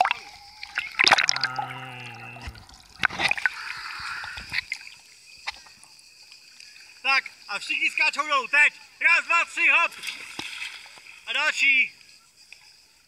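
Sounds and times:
sharp splashes: 0:00.0 - 0:01.8
sea water sloshing and splashing: 0:00.0 - 0:05.8, 0:09.9 - 0:11.3.

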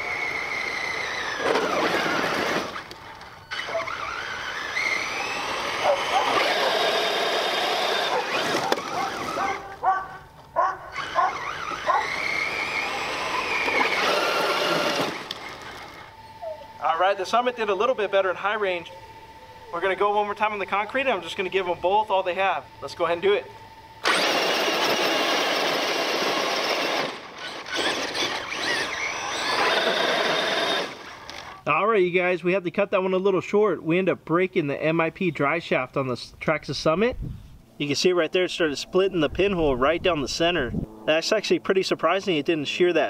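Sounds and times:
tyres spinning on concrete: 0:00.0 - 0:09.6, 0:11.0 - 0:16.1, 0:24.1 - 0:31.6
electric motors whining: 0:00.0 - 0:31.6.

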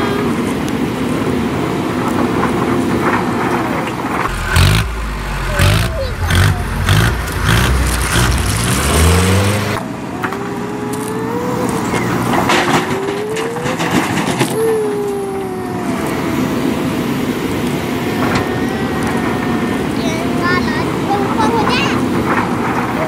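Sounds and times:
machine whining: 0:00.0 - 0:23.0
engine revving: 0:04.2 - 0:14.6.

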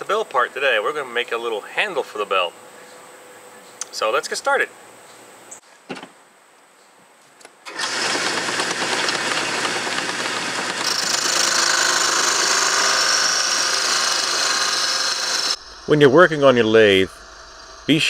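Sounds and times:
turning tool scraping wood: 0:07.7 - 0:15.6
wood lathe running: 0:07.7 - 0:18.0.

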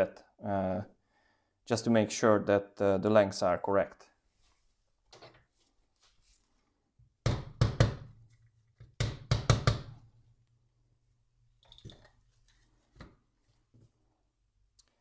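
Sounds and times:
hammer knocking on plastic: 0:09.0 - 0:09.9.

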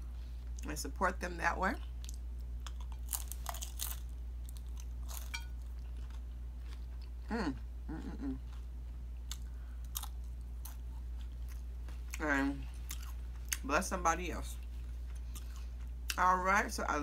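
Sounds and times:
quiet chewing: 0:01.8 - 0:13.7, 0:14.5 - 0:16.2
crisp chip crunching: 0:02.0 - 0:07.1
short vocal sounds: 0:07.3 - 0:08.4.

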